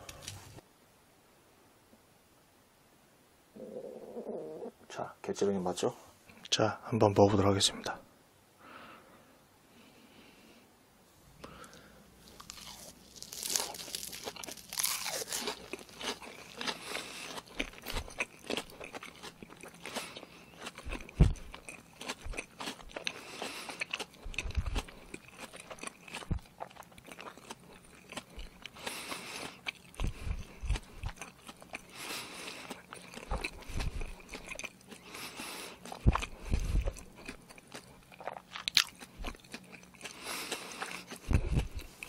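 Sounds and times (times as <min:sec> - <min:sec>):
crunchy chewing: 0:11.4 - 0:42.0.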